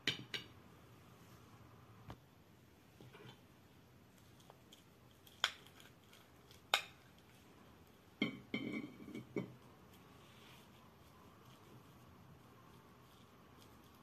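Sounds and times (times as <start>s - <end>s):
spoon clinking on ceramic plates: 8.2s - 9.6s.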